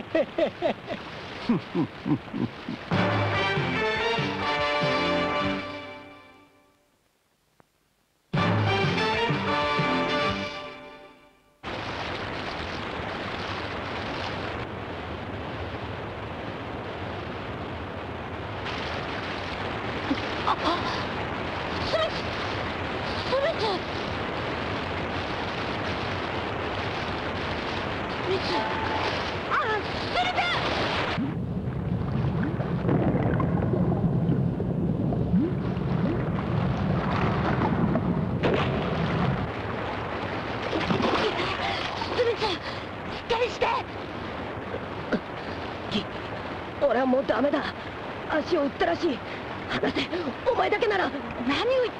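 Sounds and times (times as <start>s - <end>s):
rushing river water: 0.0s - 6.4s, 11.6s - 31.3s, 35.3s - 51.9s
low underwater rumble: 30.7s - 41.2s.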